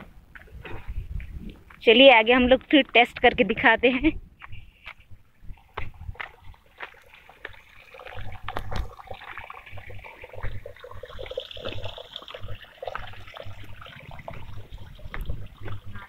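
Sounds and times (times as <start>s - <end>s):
footsteps on earth path: 0.0s - 16.0s
stream trickling: 5.4s - 16.0s.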